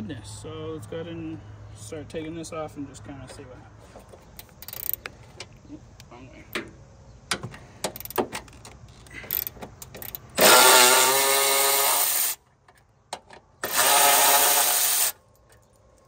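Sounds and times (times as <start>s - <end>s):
electric ratchet whirring: 9.3s - 12.4s, 13.6s - 15.2s.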